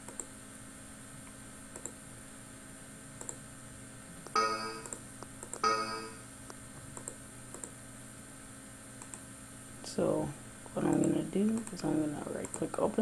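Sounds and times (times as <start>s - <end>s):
system chimes: 4.4s - 5.0s, 5.6s - 6.2s
faint clicks: 9.0s - 9.2s.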